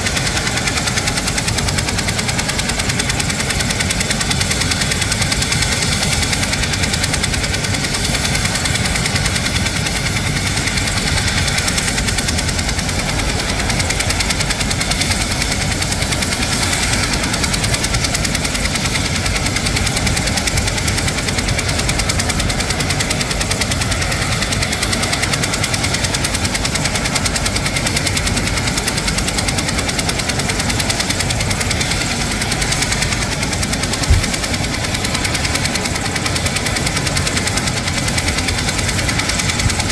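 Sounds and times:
helicopter turbine whine and rotor: 0.0s - 39.9s.

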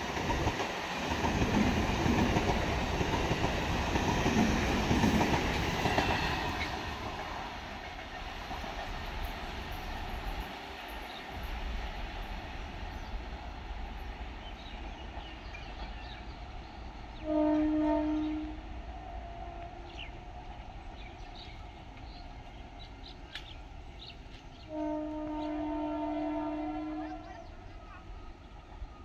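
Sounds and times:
train horn blast: 17.2s - 20.0s, 24.7s - 27.6s.

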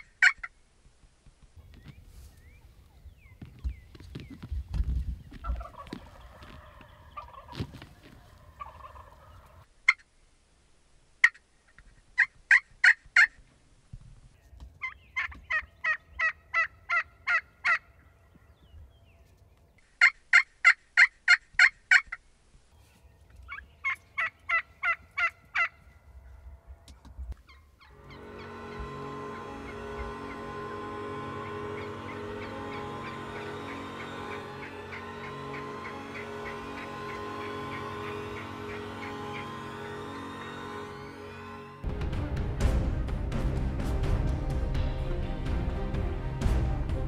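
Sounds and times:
turkeys yelping: 0.0s - 0.5s, 5.3s - 10.1s, 11.2s - 13.4s, 14.8s - 18.6s, 19.2s - 22.2s, 23.2s - 41.8s.

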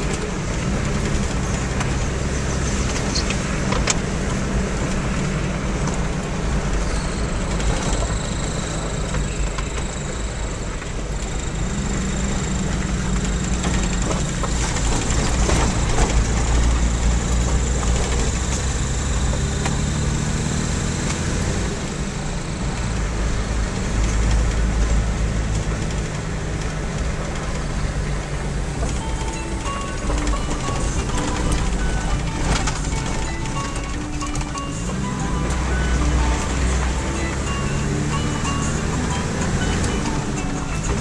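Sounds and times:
car knocks and rattles: 0.0s - 6.8s, 12.7s - 19.8s, 25.5s - 41.0s
car engine and road rumble: 0.0s - 41.0s.

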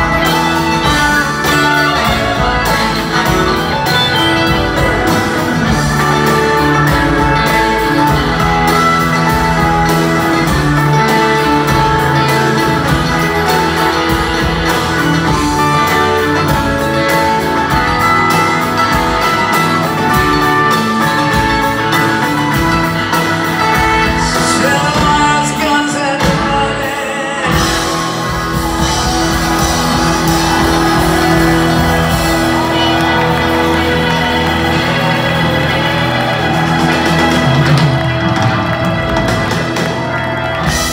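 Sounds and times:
live rock band playing: 0.0s - 40.9s.

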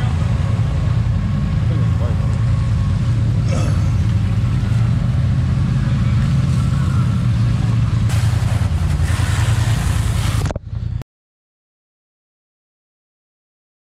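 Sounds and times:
pressure washer running: 6.0s - 10.9s
hissing spray blasting mud: 8.0s - 10.6s.

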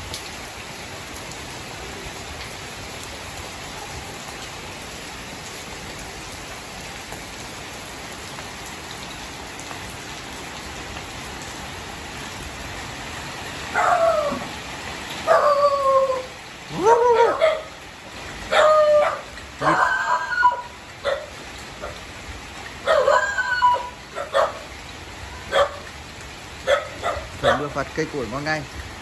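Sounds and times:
steady rain: 0.0s - 29.0s
dog barking: 13.7s - 14.3s, 15.2s - 15.6s, 16.7s - 17.8s, 18.5s - 22.0s, 22.8s - 24.7s, 25.4s - 25.9s, 26.6s - 27.8s.

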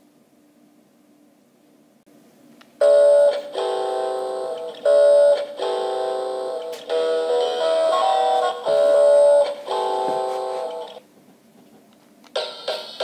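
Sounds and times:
toy electronic tune: 2.8s - 11.0s.

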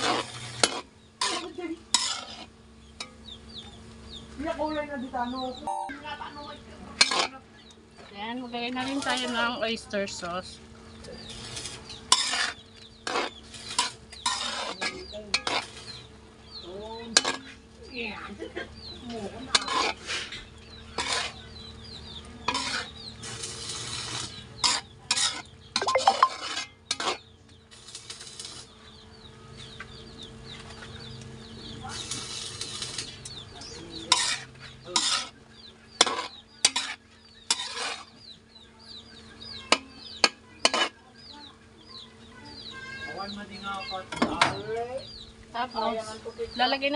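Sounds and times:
food sizzling: 0.0s - 3.2s, 8.6s - 16.2s, 19.4s - 28.8s, 31.7s - 33.4s, 34.0s - 38.2s
metal spatula scraping wok: 0.0s - 3.3s, 6.9s - 7.4s, 8.7s - 9.7s, 11.0s - 16.1s, 17.0s - 17.7s, 19.1s - 28.8s, 31.8s - 41.0s.

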